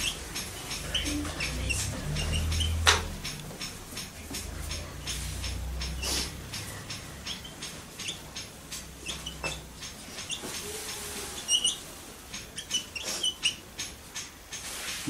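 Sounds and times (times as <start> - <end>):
marker squeaks: 9.0 - 11.8, 12.4 - 13.6.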